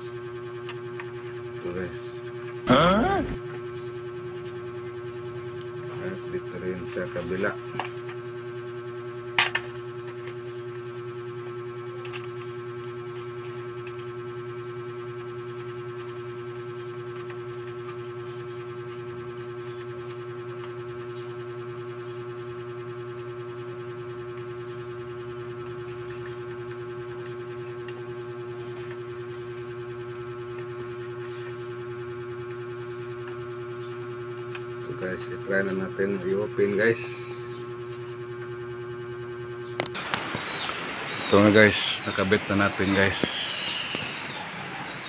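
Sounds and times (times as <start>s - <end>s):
electronic drone: 39.8s - 45.0s.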